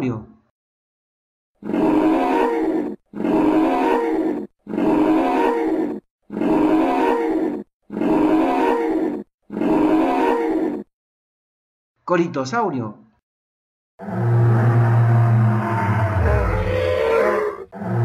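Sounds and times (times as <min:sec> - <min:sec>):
dinosaur roar: 0:01.6 - 0:10.9, 0:14.0 - 0:18.0.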